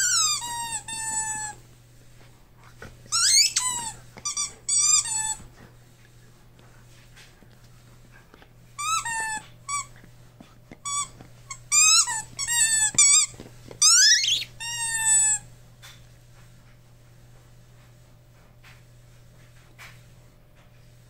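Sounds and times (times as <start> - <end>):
squeaky dog toy squeaking: 0.0 - 1.6, 3.1 - 5.4, 8.8 - 9.9, 10.8 - 15.4.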